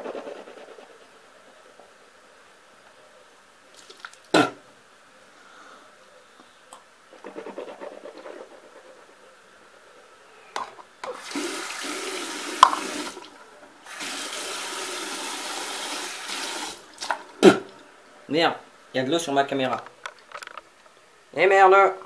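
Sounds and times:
tap running into sink: 0:12.5 - 0:13.2.

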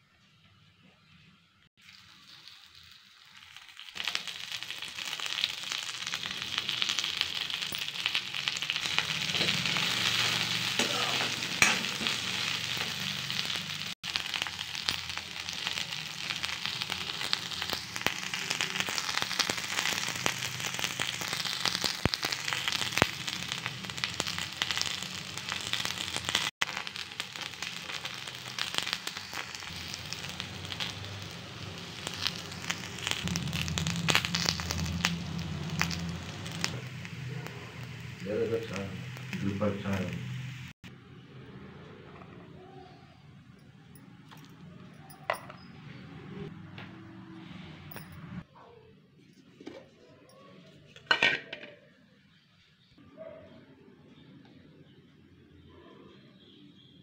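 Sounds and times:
oil crackling and popping: 0:01.8 - 0:40.9
okra sizzling in hot oil: 0:01.8 - 0:42.9.

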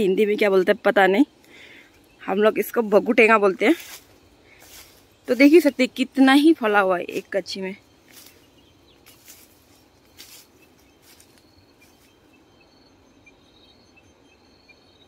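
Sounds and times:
soft rustles: 0:03.6 - 0:05.8, 0:08.0 - 0:12.2.

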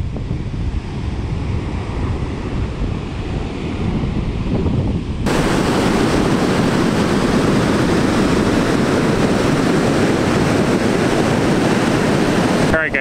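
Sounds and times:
wind on microphone: 0:00.0 - 0:13.0
ocean surf breaking: 0:05.2 - 0:13.0.

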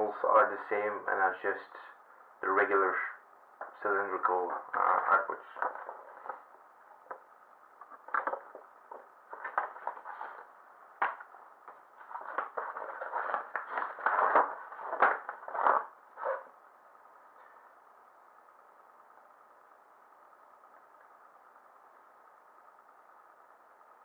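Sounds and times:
paper leaflet rustling: 0:09.3 - 0:10.5, 0:12.0 - 0:16.4.

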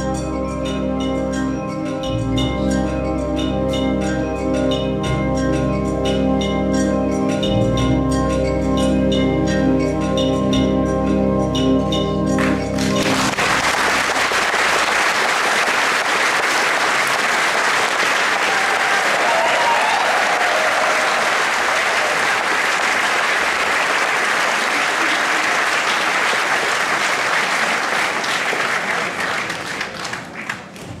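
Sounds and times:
audience applauding: 0:12.4 - 0:31.0.

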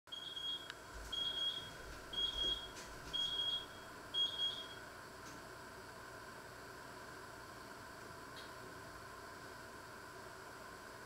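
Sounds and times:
electronic timer beeping: 0:00.1 - 0:04.8.

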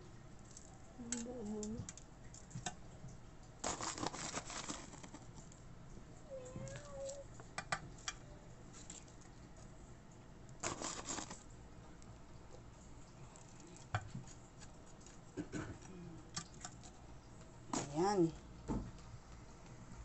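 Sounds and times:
spoon scraping crumbs: 0:03.6 - 0:05.3, 0:10.6 - 0:11.4.

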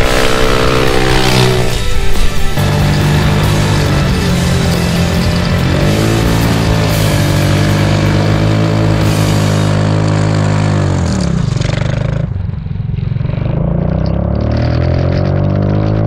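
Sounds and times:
engine revving: 0:00.0 - 0:16.0.

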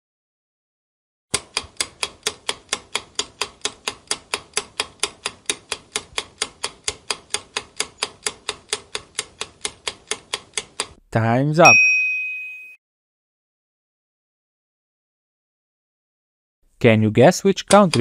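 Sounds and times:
countdown timer ticking: 0:01.3 - 0:11.0, 0:17.6 - 0:18.0.

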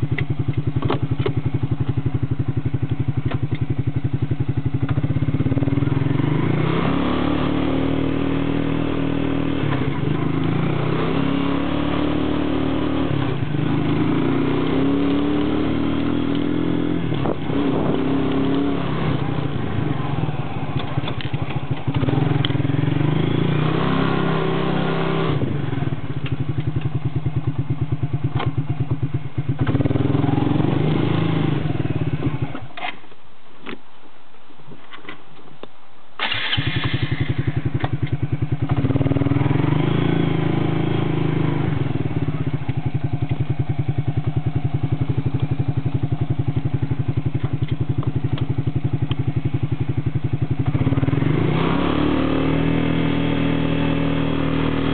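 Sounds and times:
quad bike engine revving: 0:00.0 - 0:32.7, 0:36.2 - 0:54.9
clicks: 0:20.7 - 0:22.6.

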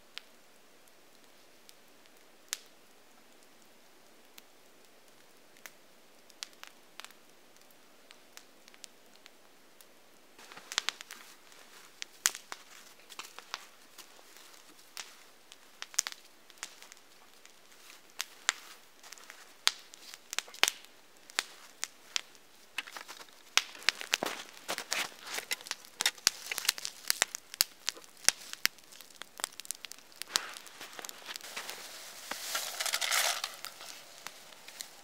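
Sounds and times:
snow crunching and squeaking: 0:22.8 - 0:27.3, 0:30.2 - 0:35.0.

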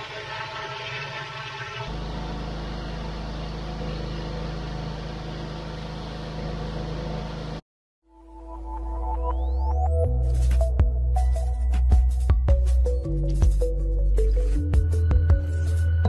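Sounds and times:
pressure washer engine: 0:01.9 - 0:07.6.

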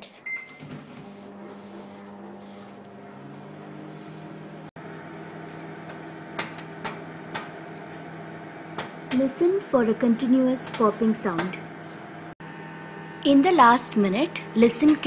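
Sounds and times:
microwave beep: 0:00.0 - 0:04.4
microwave humming: 0:00.0 - 0:15.0.

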